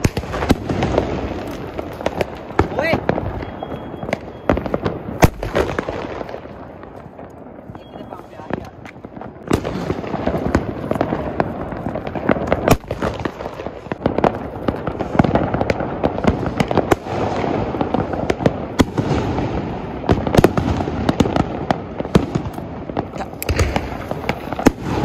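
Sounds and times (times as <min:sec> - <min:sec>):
sharp firecracker cracks: 0:00.0 - 0:07.4, 0:08.5 - 0:19.5, 0:20.1 - 0:25.0
firecrackers crackling: 0:00.0 - 0:25.0.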